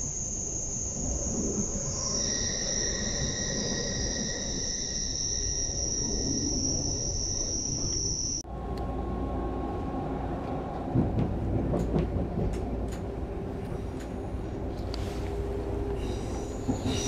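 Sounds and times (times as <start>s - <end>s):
lower whine: 0.0s - 11.6s
electric train whine: 0.0s - 17.0s
low train rumble: 0.0s - 17.0s.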